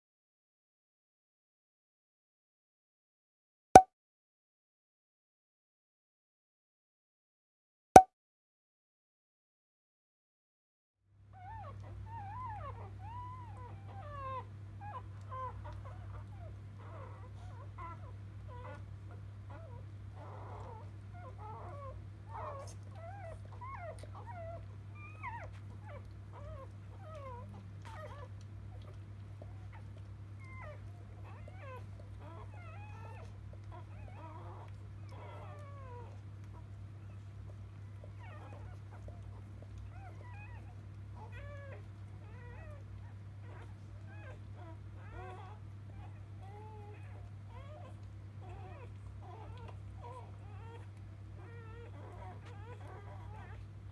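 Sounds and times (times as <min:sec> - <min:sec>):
puppies squeaking and whimpering: 0:11.4 - 0:53.7.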